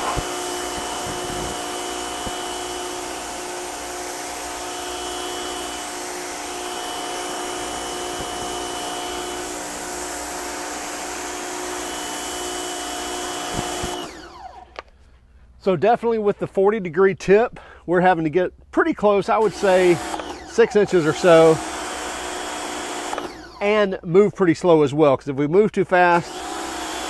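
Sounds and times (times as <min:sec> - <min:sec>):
water jet hissing on wall: 0:00.0 - 0:04.6
pump motor whine: 0:00.0 - 0:14.8, 0:19.4 - 0:23.6, 0:26.2 - 0:27.0.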